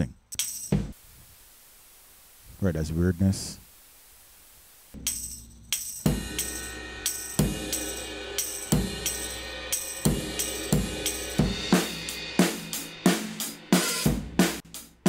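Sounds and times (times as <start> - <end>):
cymbals and hi-hats ticking: 0.0 - 0.9, 5.0 - 15.0
kick drum hits: 0.7 - 1.0.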